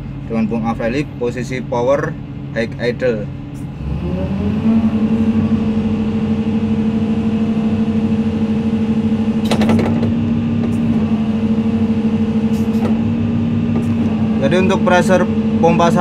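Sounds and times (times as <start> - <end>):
excavator diesel engine revving: 3.4 - 16.0.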